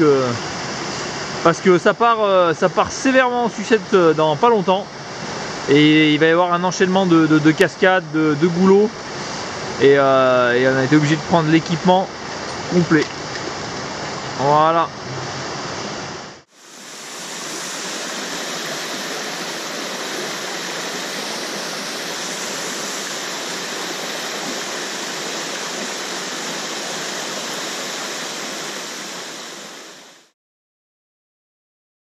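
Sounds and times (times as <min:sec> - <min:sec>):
waterfall into pool: 0:16.4 - 0:30.3.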